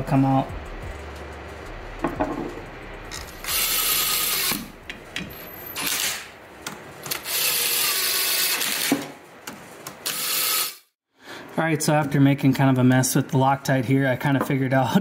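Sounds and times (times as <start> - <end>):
cordless power driver running: 3.1 - 4.7.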